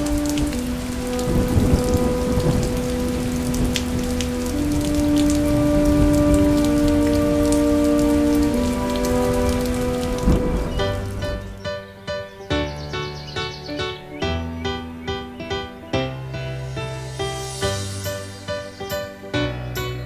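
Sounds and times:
rain falling steadily: 0:00.0 - 0:12.0, 0:16.6 - 0:20.0.

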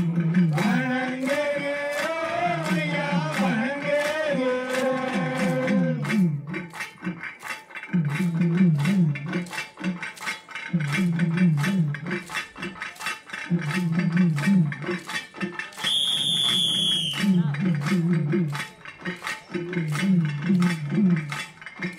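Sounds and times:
person singing: 0:00.0 - 0:06.5, 0:07.9 - 0:09.4, 0:10.7 - 0:12.2, 0:13.5 - 0:15.0, 0:17.1 - 0:18.7, 0:19.6 - 0:21.4
low drum phrases: 0:17.0 - 0:21.6.

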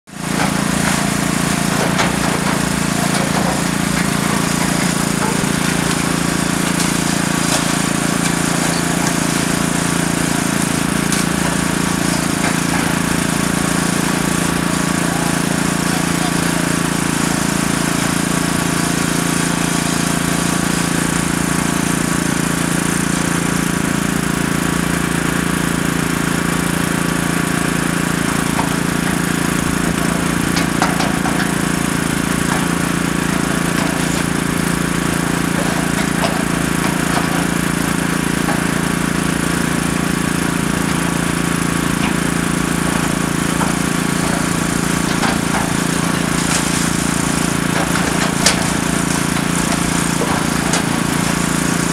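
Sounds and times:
excavator diesel engine running: 0:00.0 - 0:51.9
knocks and clatters of rubble: 0:00.2 - 0:21.3, 0:26.0 - 0:51.9.

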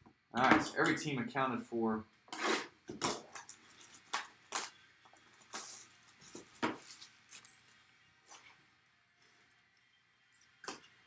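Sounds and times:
plastic wrap crinkling and tearing: 0:03.0 - 0:07.8.

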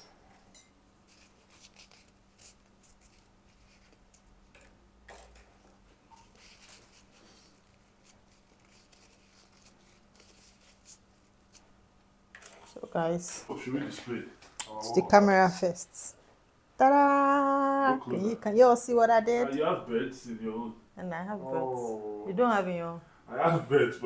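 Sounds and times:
faint steady hum: 0:00.0 - 0:24.0
paintbrush rubbing in tissue: 0:01.0 - 0:04.2, 0:06.2 - 0:11.7.

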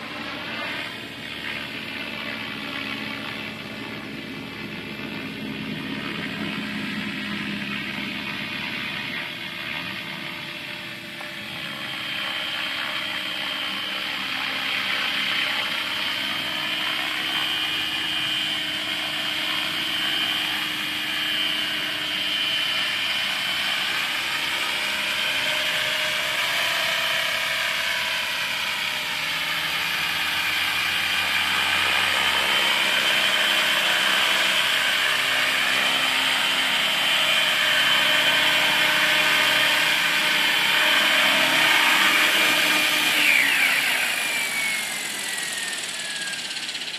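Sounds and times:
rc helicopter motor whine: 0:00.0 - 0:46.9
rotor blades rushing: 0:00.0 - 0:46.9.

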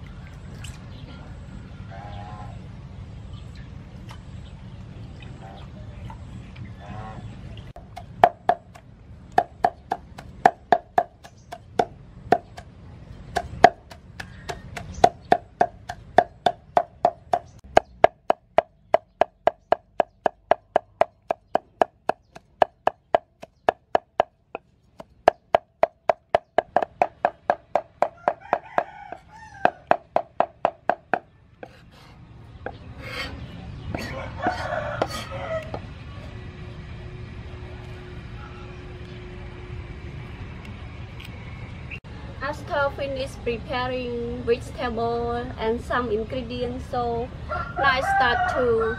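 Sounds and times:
cleaver chopping on wooden board: 0:07.8 - 0:08.8, 0:09.4 - 0:12.7, 0:13.3 - 0:24.4, 0:25.0 - 0:31.8.

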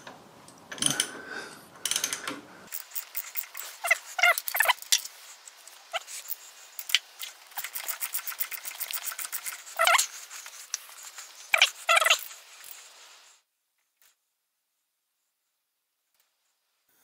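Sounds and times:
high wavering squeaks: 0:02.8 - 0:05.0, 0:07.5 - 0:10.2, 0:11.4 - 0:12.4.

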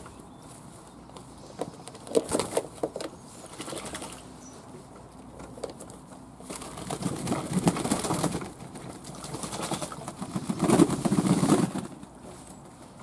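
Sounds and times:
pigeons splashing in water: 0:03.4 - 0:04.3, 0:06.6 - 0:11.1.

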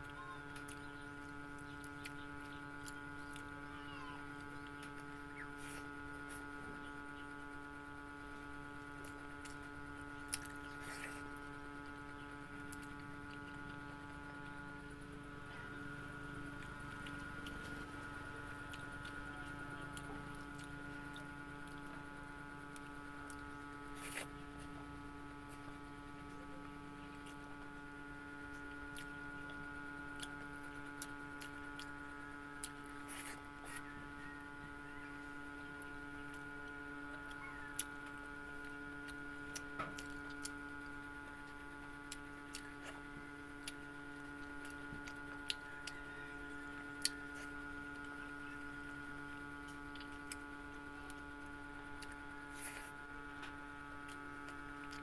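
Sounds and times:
electrical hum: 0:00.0 - 0:55.0
chewing: 0:00.5 - 0:03.5, 0:08.8 - 0:14.6, 0:16.2 - 0:22.0, 0:28.5 - 0:32.0, 0:36.2 - 0:40.6, 0:41.4 - 0:46.1, 0:49.6 - 0:55.0.

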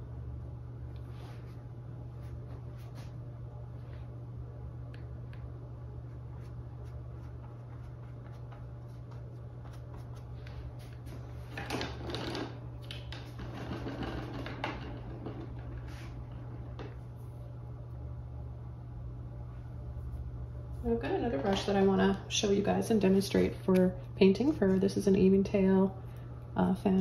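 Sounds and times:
steady low hum: 0:00.0 - 0:27.0
paintbrush scrubbing canvas: 0:06.1 - 0:11.4.

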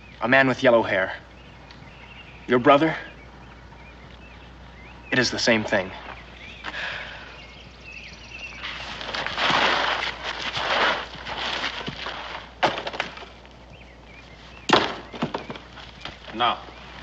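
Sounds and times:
wood snapping and splintering: 0:08.6 - 0:13.8, 0:14.6 - 0:16.6.

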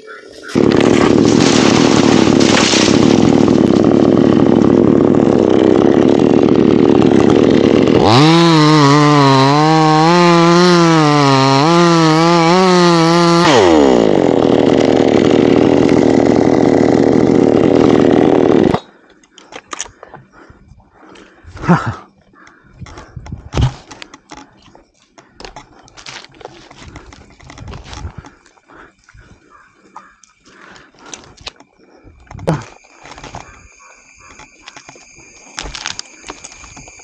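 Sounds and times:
chainsaw cutting wood: 0:00.5 - 0:18.9, 0:32.5 - 0:37.0.

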